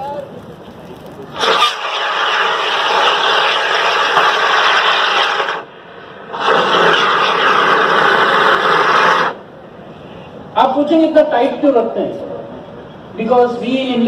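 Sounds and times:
fire extinguisher hissing: 0:01.3 - 0:09.4.

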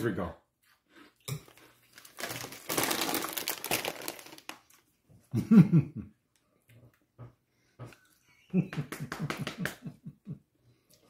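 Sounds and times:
cheese curls crinkling and crunching: 0:01.3 - 0:05.0.

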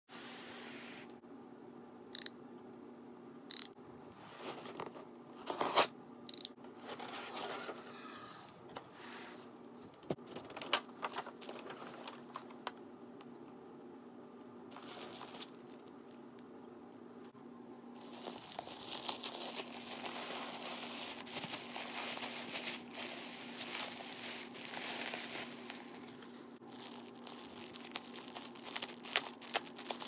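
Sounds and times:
paper rustling: 0:10.1 - 0:12.7, 0:14.7 - 0:15.8, 0:18.0 - 0:30.0
tissue paper crinkling: 0:14.7 - 0:16.1, 0:18.0 - 0:30.0.

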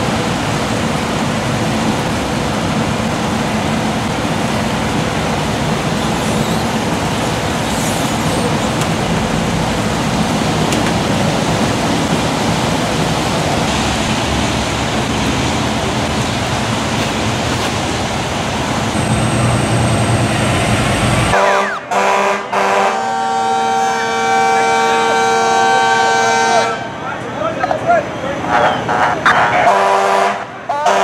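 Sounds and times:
engine humming: 0:00.0 - 0:21.9
road traffic noise: 0:00.0 - 0:31.0.

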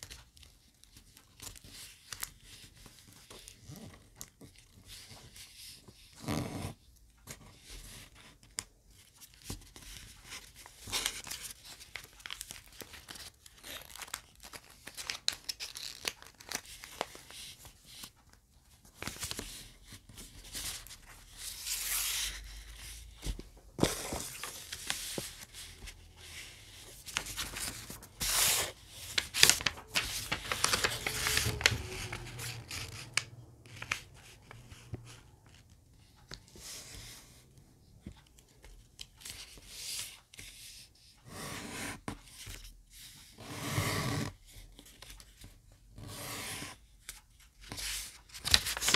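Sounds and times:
paper rustling and crinkling: 0:07.3 - 0:37.2, 0:47.1 - 0:48.9
paper folds pressed flat: 0:07.5 - 0:37.1, 0:46.8 - 0:48.9.

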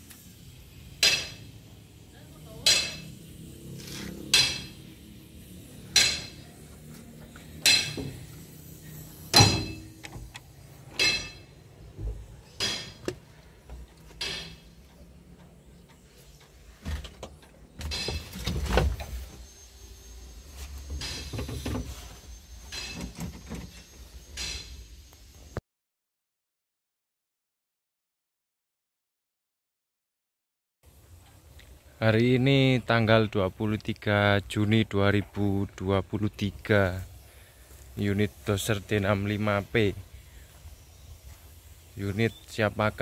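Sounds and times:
ringing metal clangs: 0:01.0 - 0:01.6, 0:02.6 - 0:03.1, 0:04.3 - 0:04.8, 0:05.9 - 0:06.4, 0:07.6 - 0:08.2, 0:09.3 - 0:10.1, 0:10.9 - 0:11.6, 0:12.5 - 0:13.0, 0:14.2 - 0:14.7, 0:22.6 - 0:24.8.

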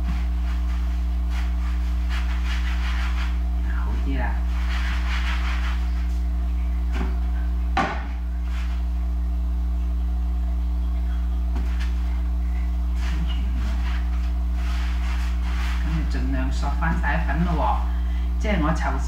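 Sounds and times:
hands kneading dough: 0:00.0 - 0:07.2, 0:11.4 - 0:17.1
low hum: 0:00.0 - 0:19.0.

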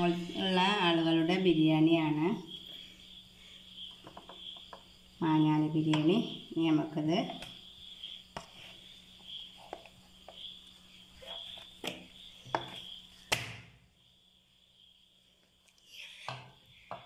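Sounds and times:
crickets chirping: 0:00.0 - 0:17.0.

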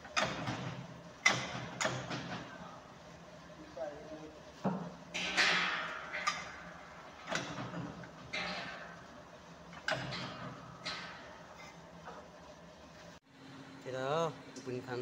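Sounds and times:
metal clanks ringing: 0:05.2 - 0:09.0.

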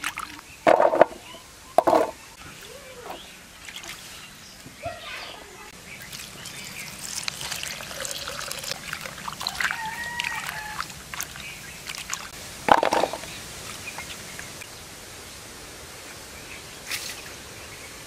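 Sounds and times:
water splashing and dripping: 0:00.0 - 0:00.8, 0:01.8 - 0:14.7
water pouring and sloshing: 0:00.0 - 0:01.1, 0:01.8 - 0:14.7.

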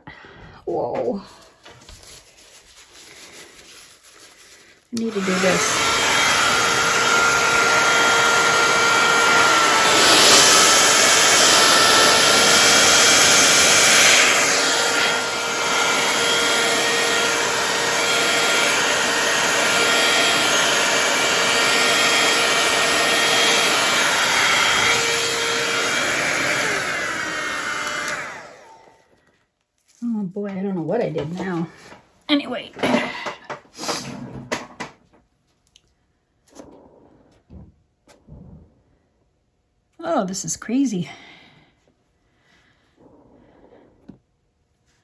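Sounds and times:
air blower rushing air: 0:05.0 - 0:28.8
blower motor whine: 0:05.0 - 0:29.0.

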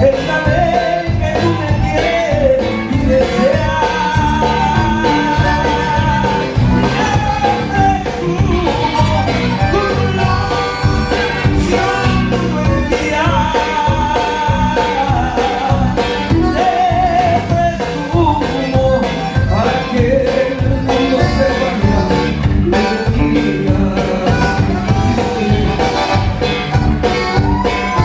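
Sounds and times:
bajo sexto strumming: 0:00.0 - 0:28.0
bass and drums: 0:00.0 - 0:28.0
button accordion: 0:00.0 - 0:28.0
man singing: 0:00.0 - 0:28.0.

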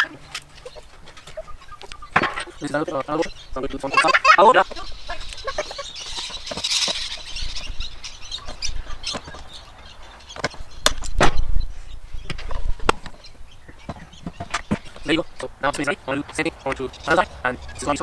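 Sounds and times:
hens clucking: 0:00.0 - 0:10.7.

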